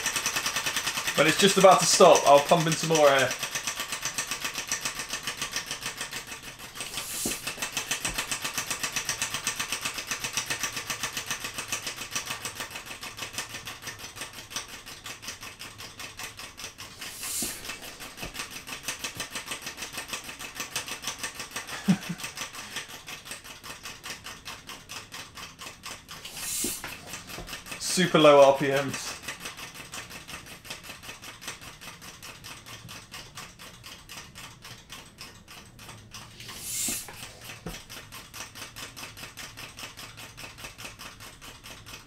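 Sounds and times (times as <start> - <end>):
air engine puffs and valve clicks: 0.0 - 33.8, 34.4 - 42.0
air hissing: 6.8 - 7.7, 16.9 - 18.4, 26.2 - 27.0, 36.4 - 37.3.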